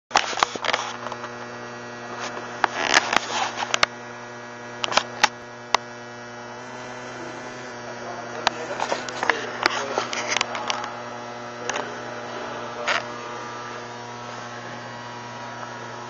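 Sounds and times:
steady electrical hum: 0:06.0 - 0:10.4.

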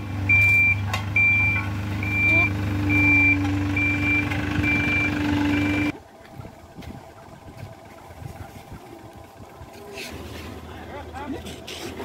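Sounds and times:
diesel engine hum: 0:00.0 - 0:12.0
reversing alarm beeping: 0:00.3 - 0:06.0.

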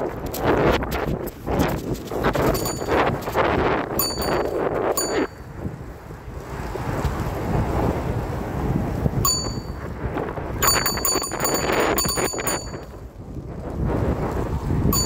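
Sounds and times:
moving bike rumble: 0:00.0 - 0:15.0
wind on microphone: 0:00.0 - 0:15.0
bicycle bell ringing: 0:02.4 - 0:05.5, 0:09.2 - 0:10.0, 0:10.6 - 0:13.0.

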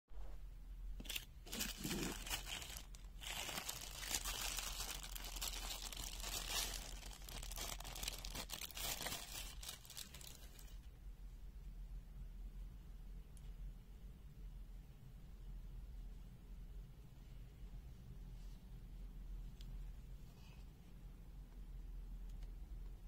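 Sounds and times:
plastic bag crinkling: 0:01.0 - 0:10.8.

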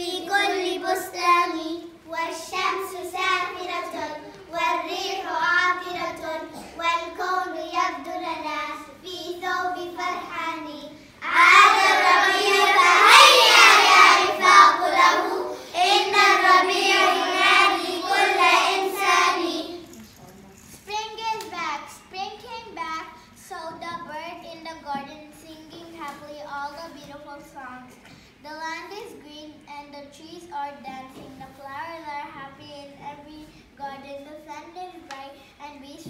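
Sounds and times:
children singing in unison: 0:11.2 - 0:19.8.

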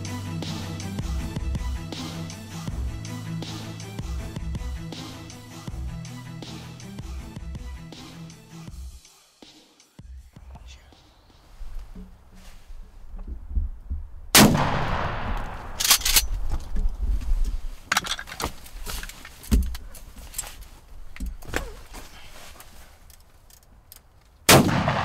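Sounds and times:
shotgun shots echoing: 0:14.4 - 0:16.2, 0:24.5 - 0:25.0.

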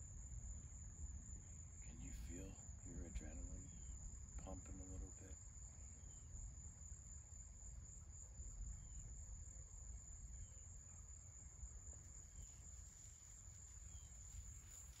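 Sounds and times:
low steady rumble: 0:00.0 - 0:10.6
insects trilling: 0:00.0 - 0:15.0.

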